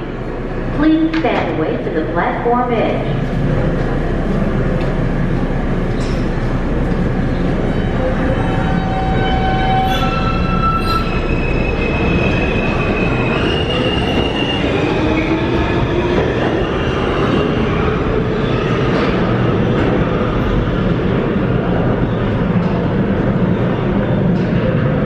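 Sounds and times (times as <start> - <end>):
wheels rumbling on rail: 2.9 - 25.0.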